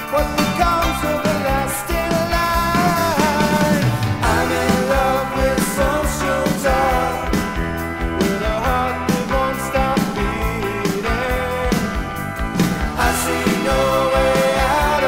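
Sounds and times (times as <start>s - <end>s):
rock band playing from vinyl: 0.0s - 15.0s.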